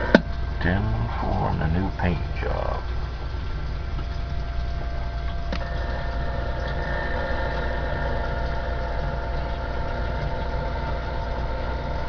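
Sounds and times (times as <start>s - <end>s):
speaker hiss: 0.0s - 3.0s
steady radio hum with held tones: 0.0s - 3.1s, 5.5s - 12.0s.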